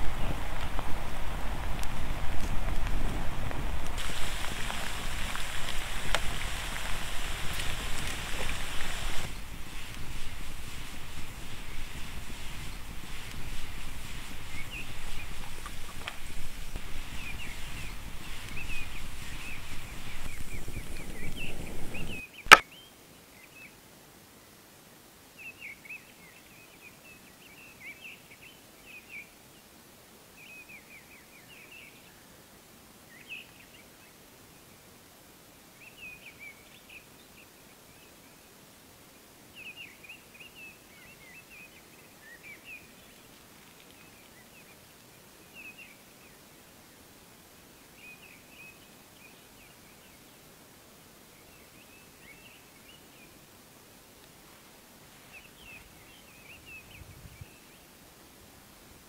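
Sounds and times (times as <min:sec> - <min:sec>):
small birds chirping: 0:01.8 - 0:23.8, 0:39.5 - 0:50.5, 0:51.2 - 0:53.6, 0:54.2 - 0:58.0.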